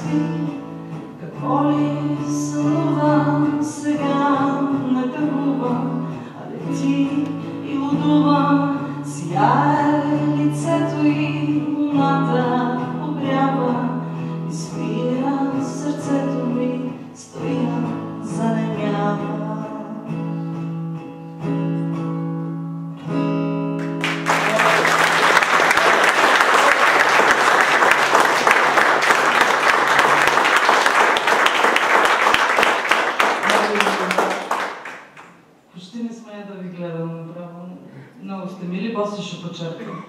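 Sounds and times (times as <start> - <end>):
woman singing: 0.0 - 20.2
acoustic guitar: 0.0 - 40.0
audience applause: 23.8 - 35.3.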